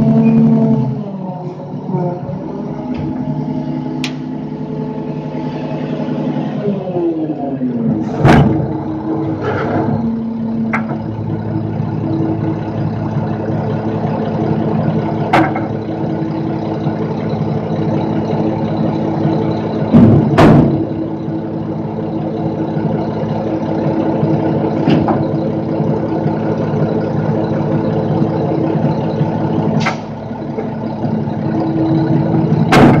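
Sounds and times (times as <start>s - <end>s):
garbage truck engine idling: 0.0s - 33.0s
sharp knocks and clanks: 10.7s - 11.1s, 15.2s - 15.8s, 19.9s - 21.0s, 32.6s - 33.0s.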